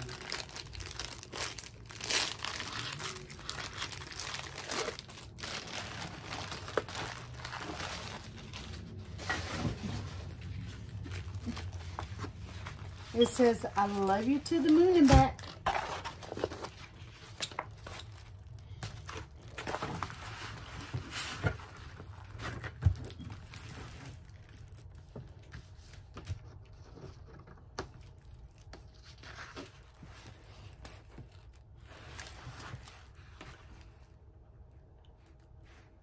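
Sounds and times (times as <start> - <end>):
plastic packaging crinkling: 0.0 - 26.2.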